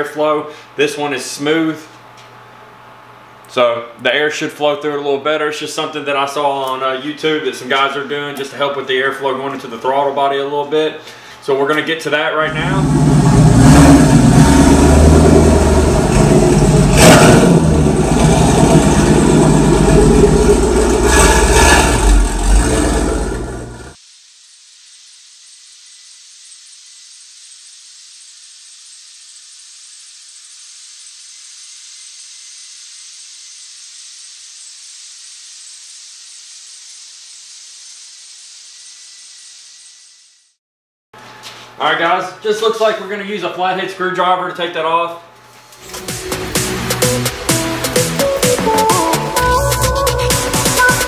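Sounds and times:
car exhaust rumble: 12.5 - 24.0
steady hiss: 24.0 - 40.5.

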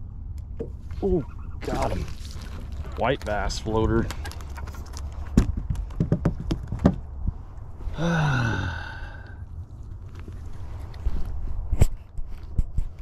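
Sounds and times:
knocks on boat deck: 5.4 - 7.0
man groaning: 7.9 - 9.3.

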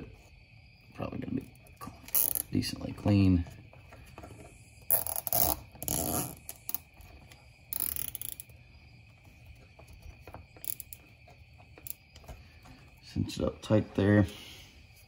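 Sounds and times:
zip tie ratcheting clicks: 4.9 - 6.8, 7.7 - 8.5.

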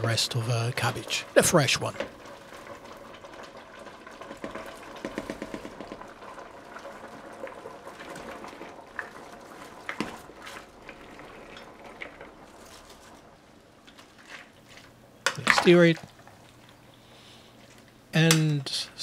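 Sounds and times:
pot of broth bubbling: 0.0 - 18.1
cabbage rustling into pot: 11.5 - 15.9.

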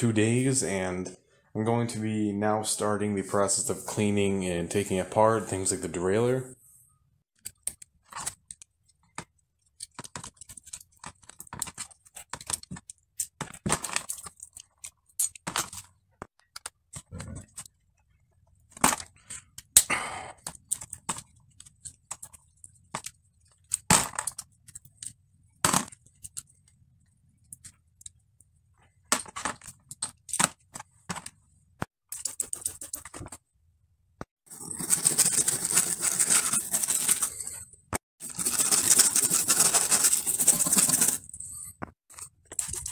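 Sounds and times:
small parts clicking and clinking: 7.4 - 19.8, 20.4 - 30.8.

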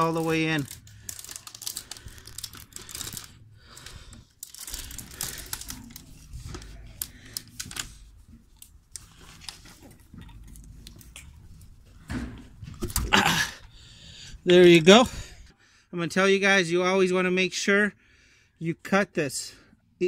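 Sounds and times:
tool clicks and rubbery scrapes: 0.0 - 13.1.

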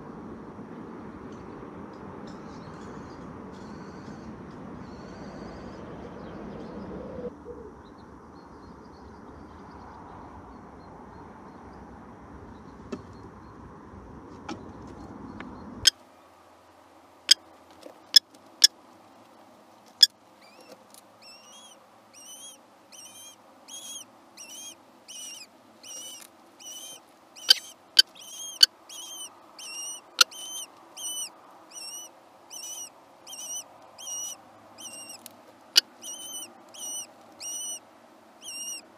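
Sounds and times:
steady outdoor rumble: 0.0 - 38.9
chicks begging cheeps: 20.0 - 35.2, 35.8 - 37.8, 38.4 - 38.8.

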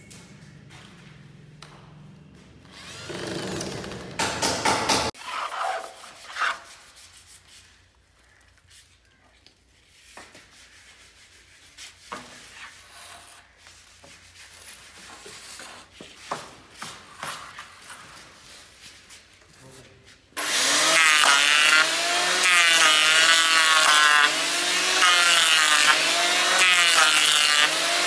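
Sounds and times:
wood scraping on concrete: 5.1 - 19.4.

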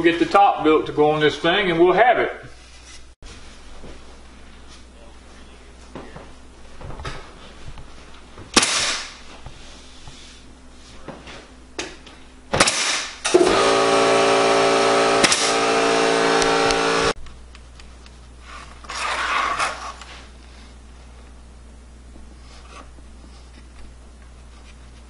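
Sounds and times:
nail gun shots: 8.5 - 9.2, 12.5 - 13.8, 15.1 - 17.0
motor running steadily: 11.8 - 17.2.

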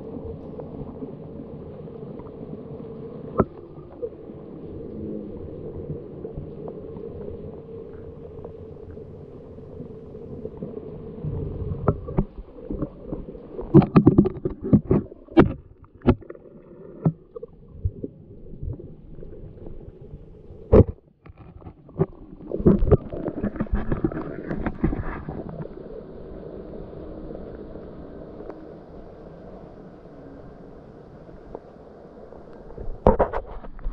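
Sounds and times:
underwater rumble of moving water: 0.0 - 33.9
sharp underwater knocks and clicks: 3.4 - 3.6, 11.8 - 18.0, 20.7 - 25.7, 32.8 - 33.9.

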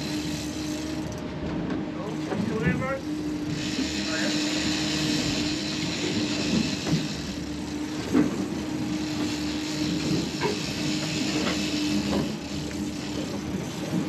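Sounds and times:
outboard motors humming: 0.0 - 14.0
wind and wake water rushing: 0.0 - 14.0.

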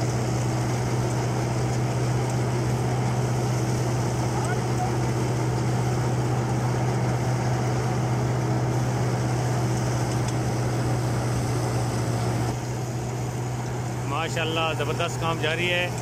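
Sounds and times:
thresher machine droning: 0.0 - 16.0.

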